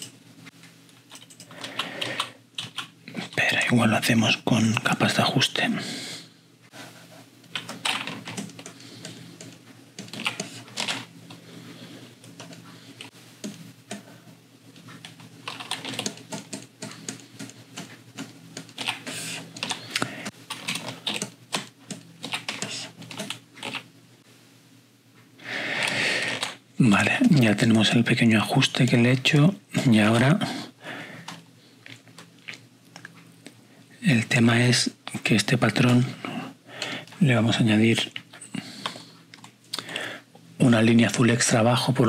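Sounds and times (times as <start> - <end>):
low steady hum: 0.0 - 42.0
keyboard and mouse clicks: 1.1 - 2.9, 7.5 - 11.0, 15.1 - 23.8.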